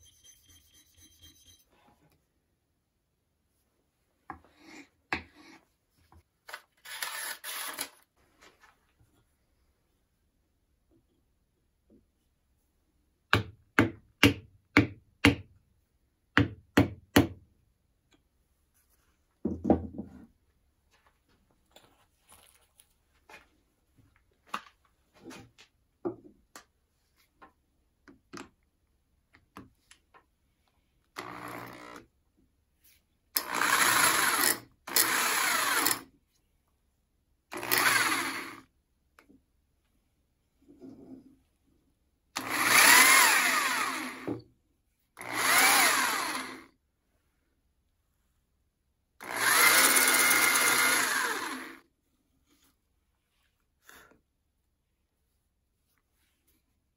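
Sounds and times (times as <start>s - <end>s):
electric drill bursts: 31.2s - 32.0s, 33.4s - 36.0s, 37.5s - 38.6s, 42.4s - 44.3s, 45.2s - 46.7s, 49.2s - 51.8s.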